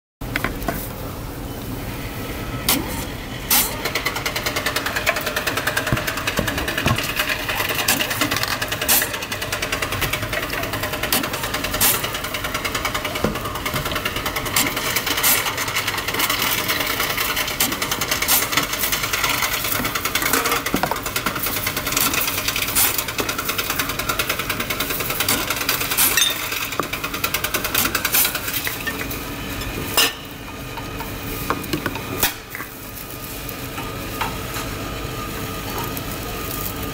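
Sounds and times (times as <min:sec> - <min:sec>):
machine rollers rattling: 0:02.7 - 0:30.1.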